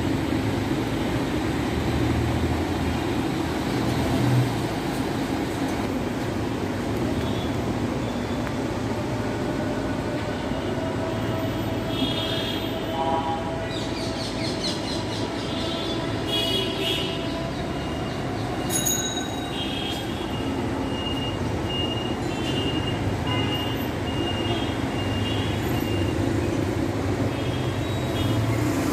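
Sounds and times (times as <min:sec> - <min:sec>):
road traffic hum: 0:00.0 - 0:28.9.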